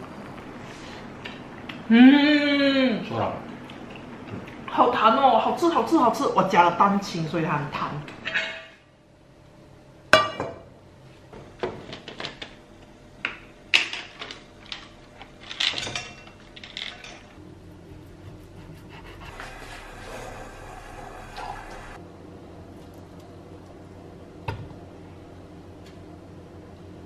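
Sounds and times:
kitchen items clinking and rattling: 13.8s - 17.4s.

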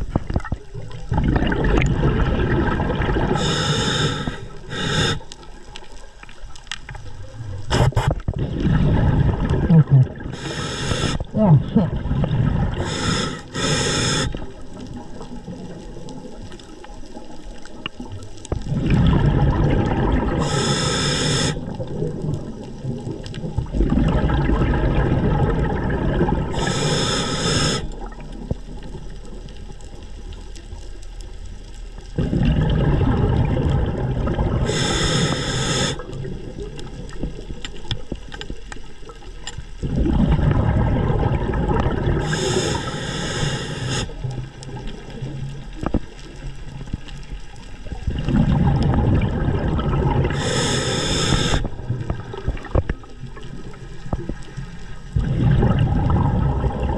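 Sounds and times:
underwater rushing and gurgling: 0.0s - 56.9s
short hiss: 7.7s - 8.2s, 10.4s - 11.2s, 12.8s - 14.4s, 20.4s - 21.6s, 26.6s - 27.9s, 34.7s - 36.0s, 42.2s - 44.1s, 50.4s - 51.7s.

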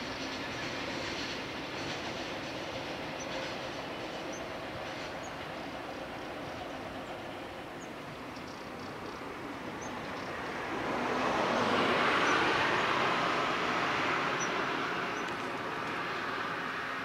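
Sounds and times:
passing vehicle rolling noise: 7.6s - 17.0s.

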